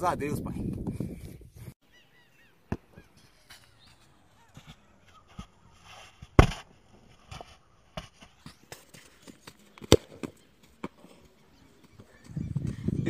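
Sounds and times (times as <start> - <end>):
football thudding: 2.7 - 3.0, 6.1 - 11.1.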